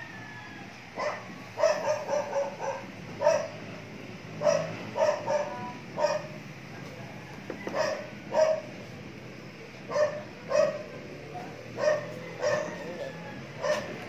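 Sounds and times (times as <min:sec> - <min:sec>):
dog barking: 0:01.0 - 0:03.6, 0:04.4 - 0:06.4, 0:07.7 - 0:08.7, 0:09.9 - 0:10.9, 0:11.8 - 0:12.9, 0:13.6 - 0:14.0.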